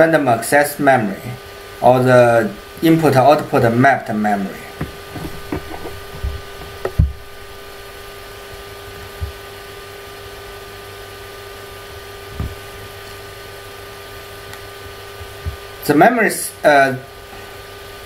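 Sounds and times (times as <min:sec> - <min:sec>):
low background hum: 0:00.0 - 0:18.0
soft low thumps: 0:04.7 - 0:09.5, 0:12.3 - 0:12.8.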